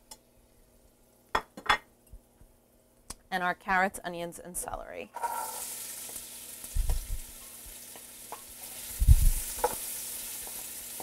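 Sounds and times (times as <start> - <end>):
vegetables sizzling in oil: 5.2 - 11.0.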